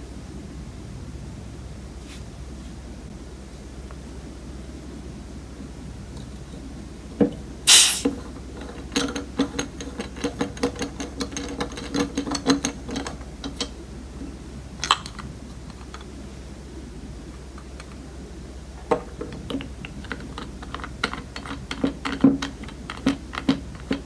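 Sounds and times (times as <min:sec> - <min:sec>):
gas hissing out: 0:07.7 - 0:08.2.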